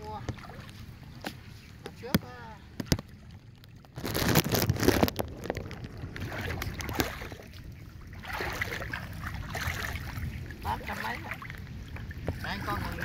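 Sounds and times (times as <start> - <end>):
water splashing and dripping: 0.0 - 13.0.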